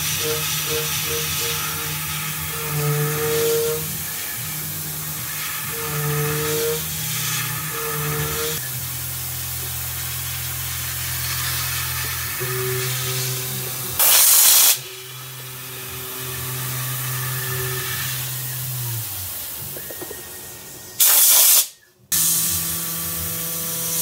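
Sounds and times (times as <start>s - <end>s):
milling machine spindle humming: 0.0s - 21.0s
short loud hiss: 21.0s - 22.4s.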